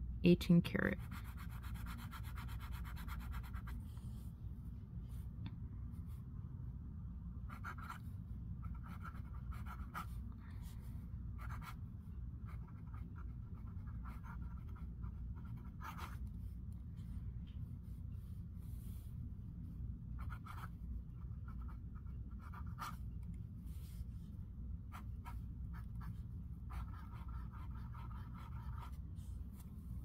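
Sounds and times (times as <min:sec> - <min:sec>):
fountain pen scratching on paper: 0:01.0 - 0:03.8, 0:07.5 - 0:08.0, 0:08.6 - 0:10.2, 0:11.4 - 0:11.8, 0:12.4 - 0:16.3, 0:20.2 - 0:24.1, 0:24.9 - 0:29.7.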